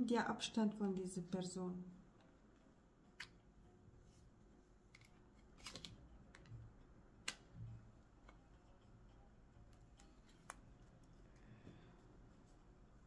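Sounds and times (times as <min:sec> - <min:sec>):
cards clicking: 0:04.9 - 0:06.5.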